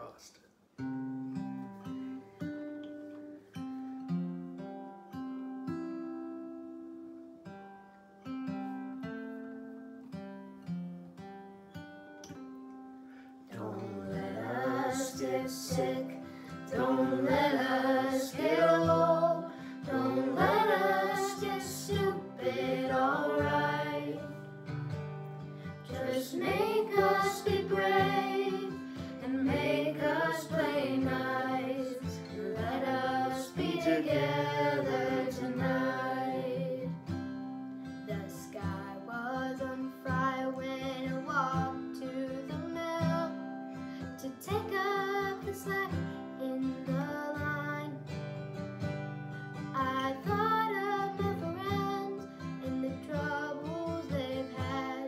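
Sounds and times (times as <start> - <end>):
acoustic guitar: 0.0 - 55.0
woman and children singing: 13.5 - 24.4, 25.9 - 37.1, 38.1 - 43.4, 44.2 - 48.0, 49.8 - 55.0.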